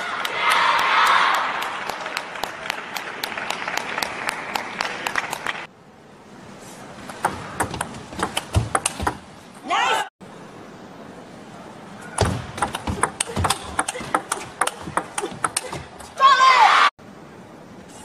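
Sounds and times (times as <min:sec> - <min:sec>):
crowd cheering: 0:00.0 - 0:05.7.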